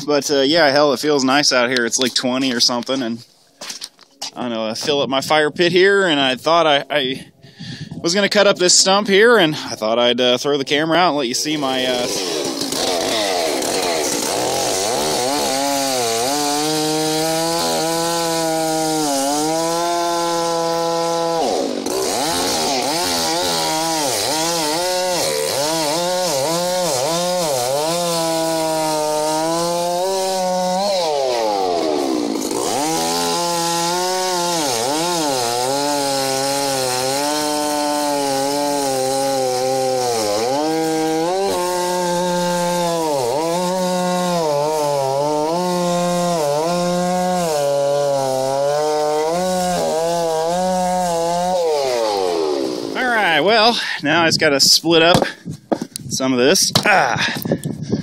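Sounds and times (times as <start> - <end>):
chainsaw cutting wood: 10.7 - 53.8, 55.1 - 56.0.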